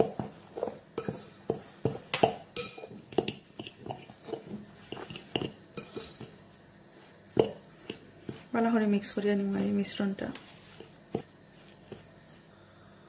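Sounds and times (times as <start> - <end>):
fork clinking against bowl: 0.0 - 6.3.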